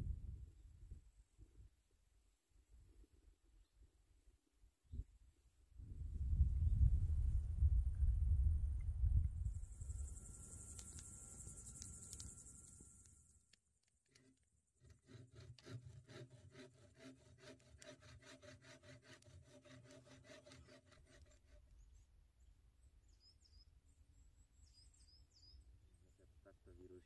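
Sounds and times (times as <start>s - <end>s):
rhythmic rubbing or scraping: 14.8s - 21.6s.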